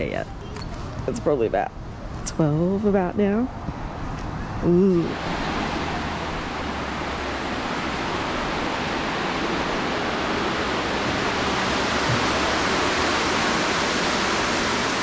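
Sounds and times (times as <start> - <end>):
creek water cascading over rocks: 5.2 - 15.0.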